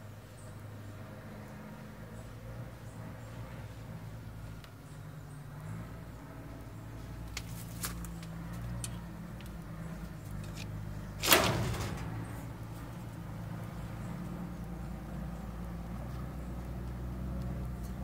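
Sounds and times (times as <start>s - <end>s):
rabbit hutches clicking: 7.3s - 18.0s.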